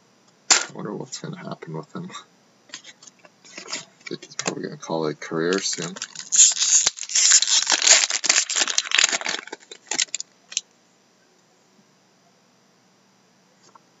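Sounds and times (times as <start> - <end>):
foil wrapper tearing and crinkling: 5.5 - 10.6.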